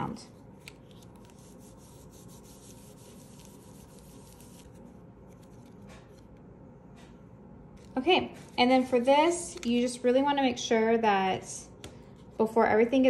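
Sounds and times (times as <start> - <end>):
hands rubbing cardstock: 0.6 - 4.8
paper brushing against paper: 0.8 - 5.8.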